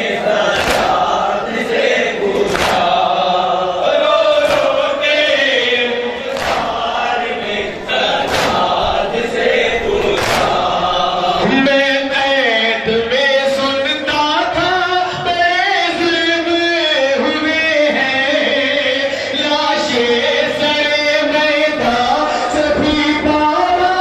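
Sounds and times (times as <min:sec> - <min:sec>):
men chanting in unison: 0:00.0 - 0:24.0
single voice singing: 0:00.0 - 0:24.0
hand slapping chest: 0:00.6 - 0:01.1, 0:02.4 - 0:03.0, 0:04.4 - 0:04.8, 0:06.3 - 0:06.8, 0:08.2 - 0:08.8, 0:10.2 - 0:10.6.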